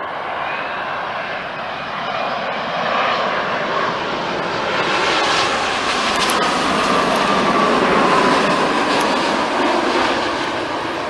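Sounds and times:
jet engine whine: 0:00.0 - 0:11.0
jet engines passing overhead: 0:00.0 - 0:11.0.

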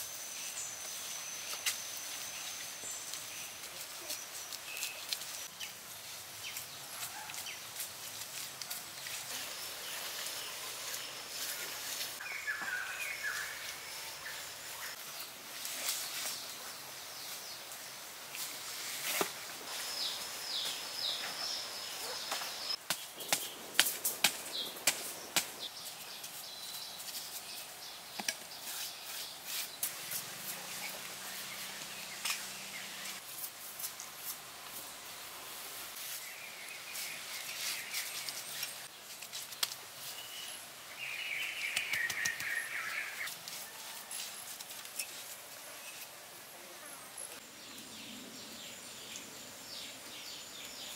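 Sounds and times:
birds chirping: 0:08.9 - 0:15.4, 0:19.7 - 0:33.2, 0:40.0 - 0:43.3.

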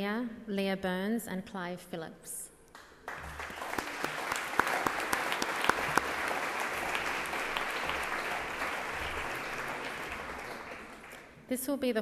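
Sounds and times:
crowd clapping: 0:02.8 - 0:11.4.

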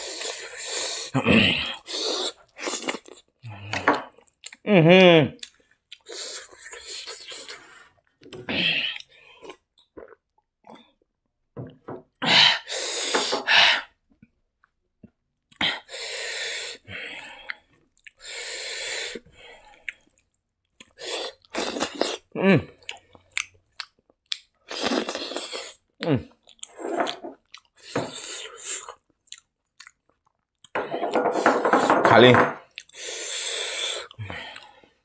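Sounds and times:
man chewing rice: 0:00.0 - 0:03.3, 0:05.4 - 0:07.8, 0:08.8 - 0:10.8, 0:17.4 - 0:30.8, 0:32.6 - 0:34.8.

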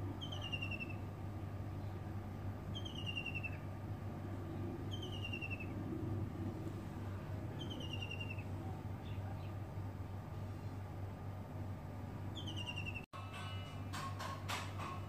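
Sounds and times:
bird calling with falling trill: 0:00.0 - 0:01.1, 0:02.7 - 0:03.7, 0:04.8 - 0:05.8, 0:07.5 - 0:09.5, 0:12.3 - 0:13.1
low steady background hum: 0:00.0 - 0:15.0.

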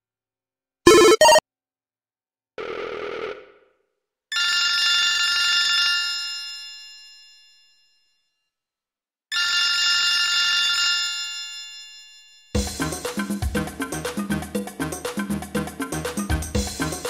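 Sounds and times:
bell-like phone ringtone: 0:00.9 - 0:01.4.

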